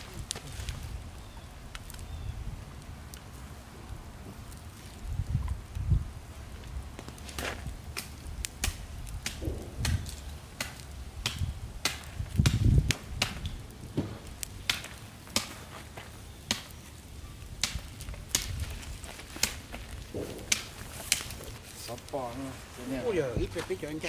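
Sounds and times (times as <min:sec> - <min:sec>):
twigs snapping: 0:00.0 - 0:02.3, 0:06.6 - 0:22.5
footsteps through dry brush: 0:17.8 - 0:23.9.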